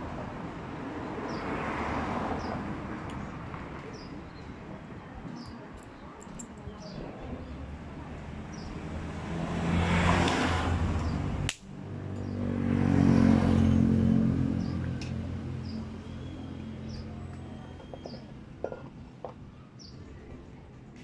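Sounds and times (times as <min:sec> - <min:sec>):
vehicle engine passing by: 0:08.2 - 0:17.7.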